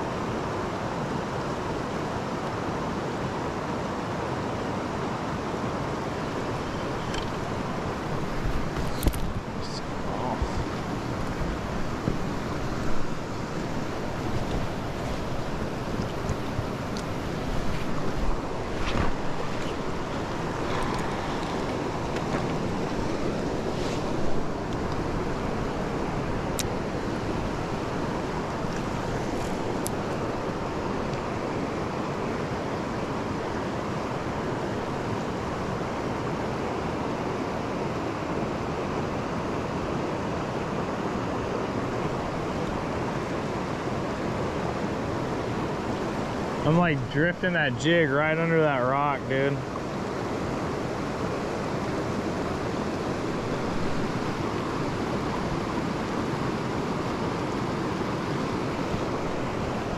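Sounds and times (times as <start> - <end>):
water running over rocks: 6.3 - 25.0.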